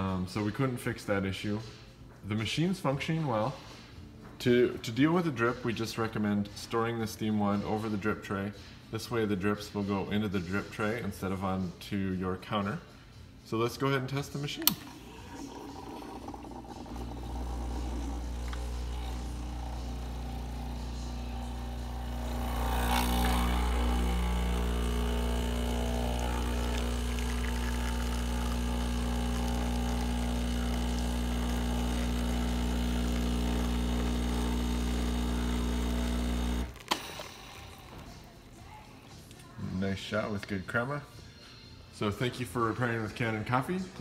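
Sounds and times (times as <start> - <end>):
espresso machine pump humming: 14.6 - 38.3.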